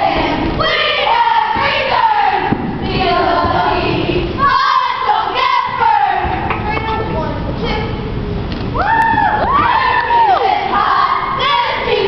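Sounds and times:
crowd noise: 0:00.0 - 0:12.0
girls yelling in chant-like calls: 0:08.8 - 0:12.0.

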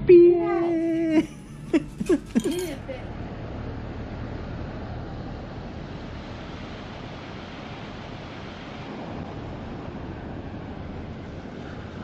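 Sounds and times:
surf breaking on beach: 0:05.6 - 0:12.0.

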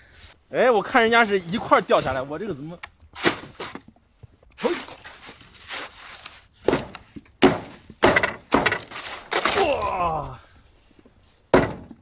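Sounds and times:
snow shovel striking hard snow: 0:03.2 - 0:03.8.

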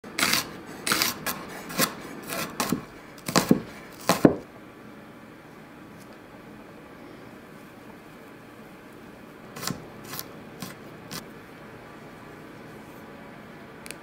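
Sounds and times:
knife chopping on wooden board: 0:00.2 - 0:04.4, 0:09.6 - 0:10.8.

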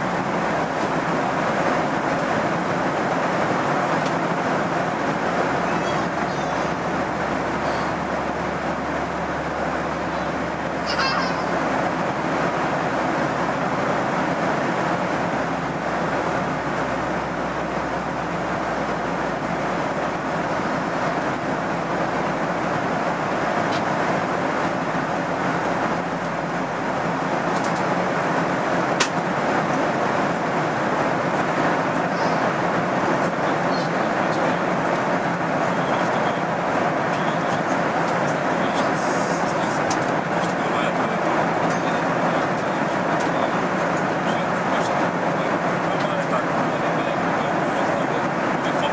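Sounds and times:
airliner cabin rush and hum: 0:00.0 - 0:48.9.

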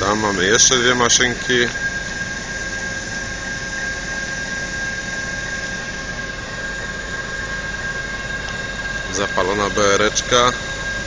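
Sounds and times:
locomotive engine idling: 0:00.0 - 0:04.2
high whine: 0:00.0 - 0:11.0.

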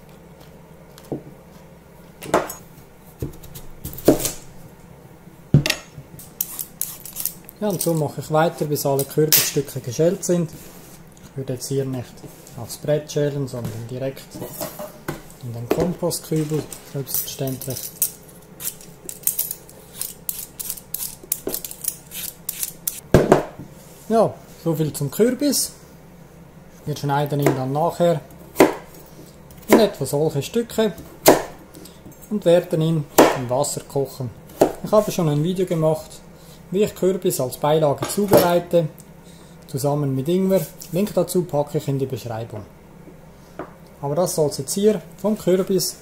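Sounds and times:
vegetable peeler scraping pumpkin skin: 0:06.3 - 0:08.0, 0:18.6 - 0:23.0.

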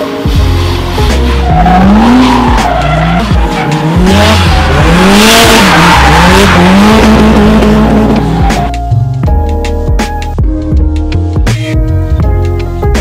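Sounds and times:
car engine revving: 0:00.0 - 0:09.0
tyres screeching: 0:01.0 - 0:08.8.

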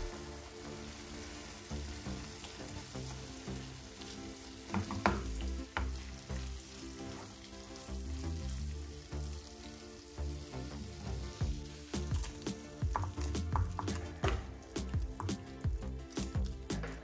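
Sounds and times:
food sizzling in a frying pan: 0:00.0 - 0:17.0
soft background music: 0:00.0 - 0:17.0
utensil knocking against pan: 0:04.7 - 0:05.9.

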